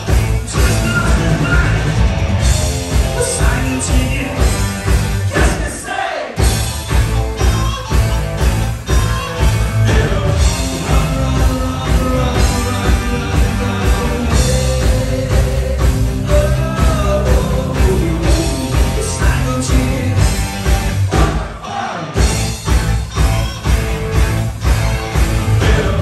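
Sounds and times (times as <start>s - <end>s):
electric guitar: 0.0s - 5.7s, 6.4s - 21.5s, 22.2s - 26.0s
drum kit beat: 0.0s - 26.0s
person singing: 3.1s - 4.7s, 7.3s - 20.4s.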